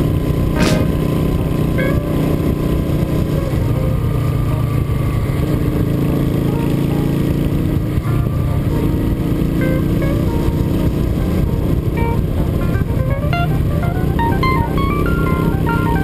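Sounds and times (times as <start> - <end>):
wind and road noise: 0.0 - 16.0
motorcycle engine running: 0.1 - 16.0.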